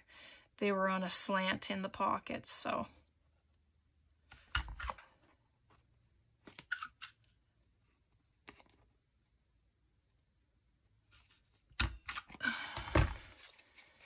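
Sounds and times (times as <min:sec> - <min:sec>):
paper rustling and crunching: 0:13.2 - 0:14.0.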